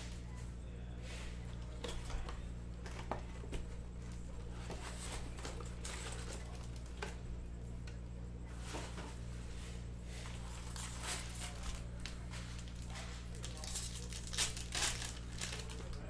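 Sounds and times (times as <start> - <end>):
steady low hum: 0.0 - 16.0
card packs crinkling and tearing: 1.6 - 7.7, 10.3 - 16.0.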